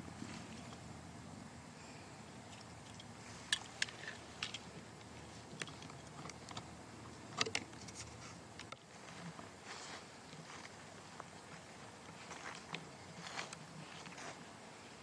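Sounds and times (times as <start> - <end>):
footsteps crunching on dry leaves: 8.9 - 15.0.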